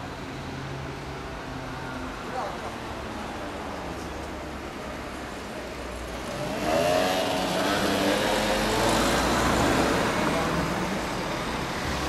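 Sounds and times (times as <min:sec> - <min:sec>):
car passing: 0:06.0 - 0:12.0
motor scooter passing: 0:06.1 - 0:11.1.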